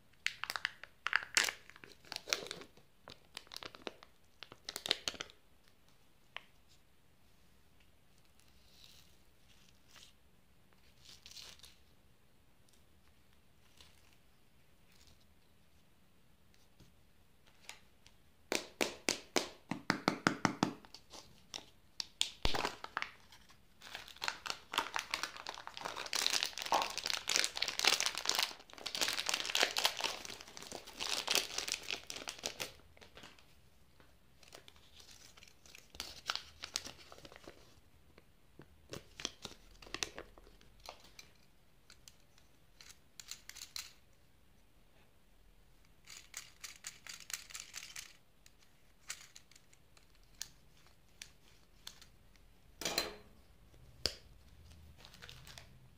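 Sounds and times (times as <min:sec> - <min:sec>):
candy wrappers crinkling: 0:00.2 - 0:05.4, 0:21.0 - 0:33.5, 0:34.4 - 0:37.7, 0:46.0 - 0:52.5, 0:54.0 - 0:55.9.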